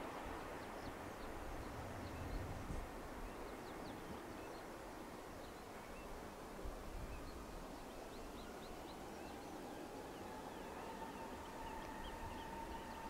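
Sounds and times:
birds chirping: 7.0 - 13.0.

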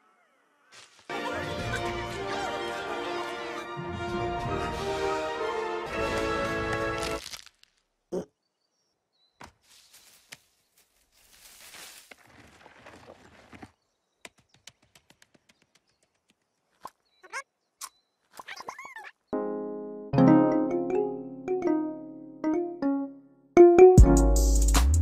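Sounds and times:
bush rustling: 0.7 - 1.2, 6.1 - 7.9, 9.5 - 13.7
piano music: 19.4 - 25.0.

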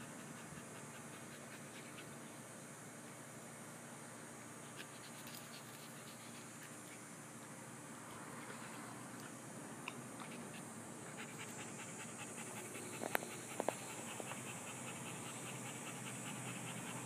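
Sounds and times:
dog panting: 0.0 - 2.3, 10.2 - 17.0.

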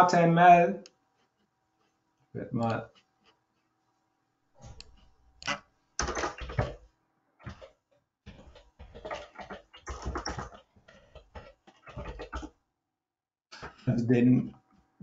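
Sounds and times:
computer keyboard typing: 4.8 - 6.8.

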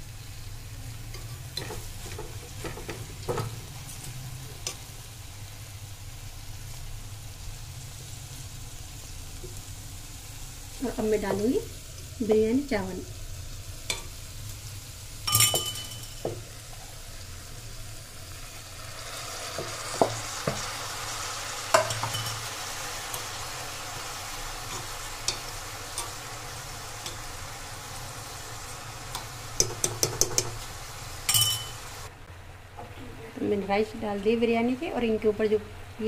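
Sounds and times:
vegetables sizzling in oil: 0.0 - 36.0
metal spoon clinking and scraping: 15.3 - 16.3, 21.7 - 22.5, 31.3 - 31.9.

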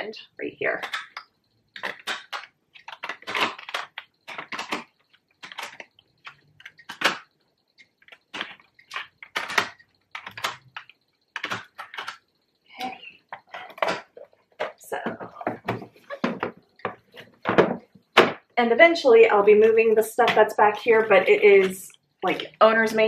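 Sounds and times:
plastic cartridges clicking: 0.8 - 18.5.

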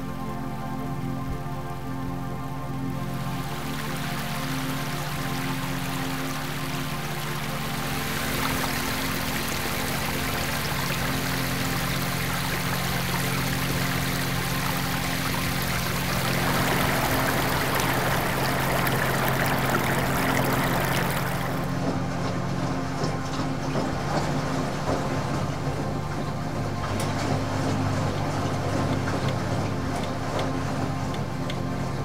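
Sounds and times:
water splashing into pool: 3.5 - 21.7
low held tones: 13.0 - 21.9.

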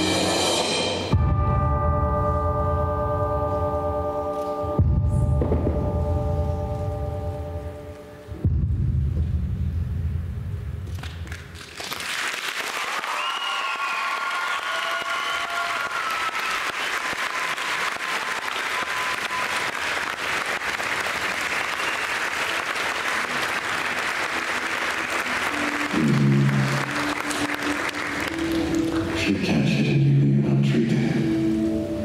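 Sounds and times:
low gong-like tone: 1.1 - 8.6
audience applauding: 11.0 - 29.6.

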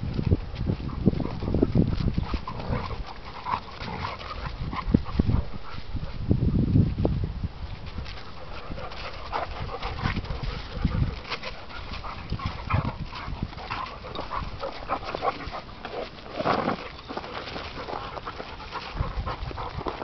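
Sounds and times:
dogs panting: 0.0 - 6.2, 8.0 - 20.0
dogs scuffling: 0.0 - 7.0, 7.6 - 20.0.

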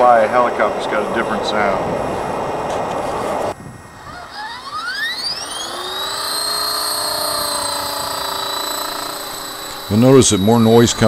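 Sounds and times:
rc helicopter motor whine: 0.0 - 11.0.

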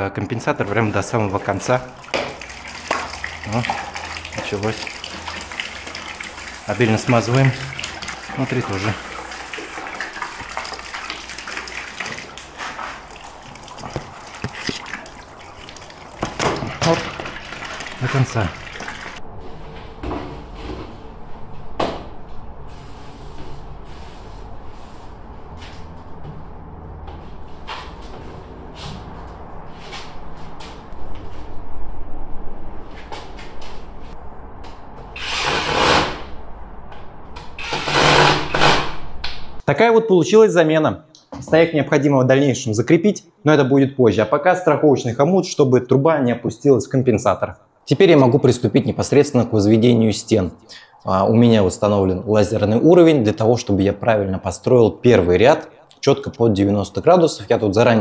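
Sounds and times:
water running: 0.4 - 19.2
cordless drill running: 37.6 - 38.8.

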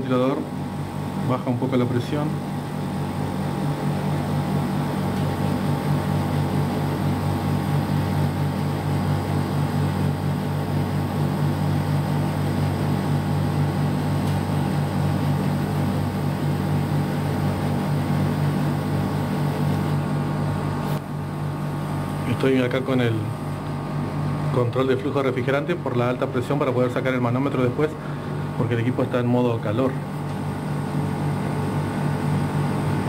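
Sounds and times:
air conditioner compressor humming: 0.0 - 33.0
air conditioner click: 4.9 - 6.4, 14.1 - 14.6, 29.7 - 30.7.

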